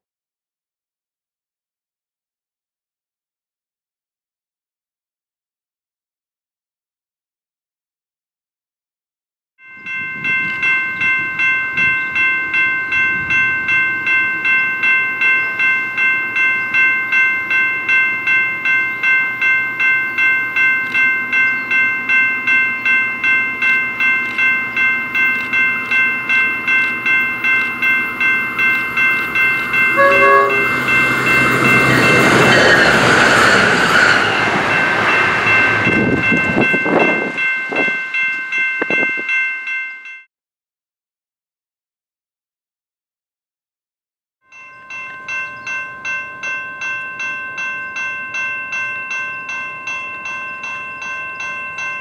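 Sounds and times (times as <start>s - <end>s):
crossing warning bell ringing: 9.6s - 40.3s, 44.5s - 52.0s
train rushing past: 26.2s - 37.4s
train horn: 29.9s - 31.0s.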